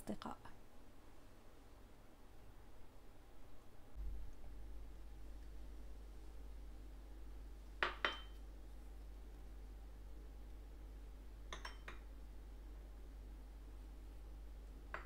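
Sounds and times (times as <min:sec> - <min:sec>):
steady low hum: 0:00.0 - 0:15.0
ceramic bowls clinking on plate: 0:07.8 - 0:08.4, 0:11.5 - 0:12.0.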